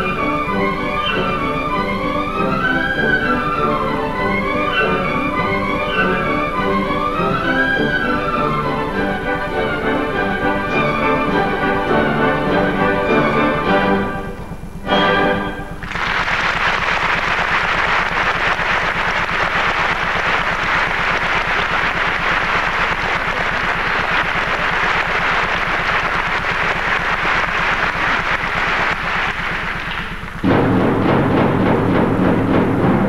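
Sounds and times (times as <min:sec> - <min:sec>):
orchestra with timpani: 0:00.0 - 0:33.0
audience applauding: 0:15.8 - 0:30.5.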